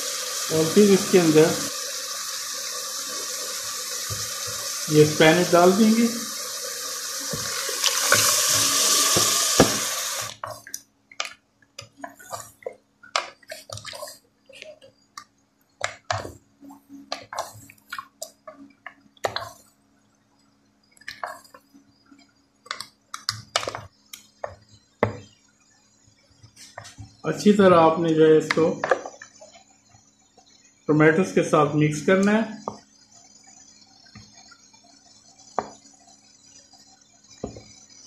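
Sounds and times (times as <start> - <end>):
paste sizzling in hot oil: 0.0 - 10.7.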